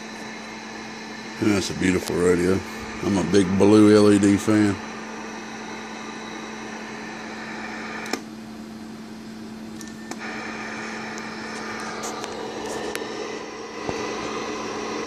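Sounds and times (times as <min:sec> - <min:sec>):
radio static hiss: 0:00.0 - 0:08.2, 0:10.2 - 0:15.0
low hum: 0:00.0 - 0:15.0
click: 0:08.0 - 0:08.3, 0:09.8 - 0:10.2.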